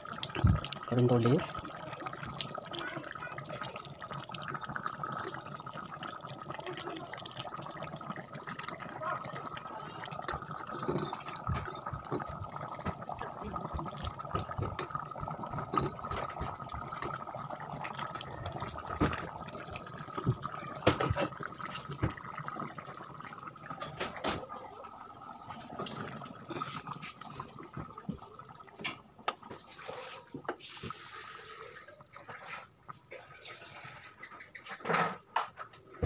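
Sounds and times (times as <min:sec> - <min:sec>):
curry bubbling with pops: 0:00.0 - 0:36.0.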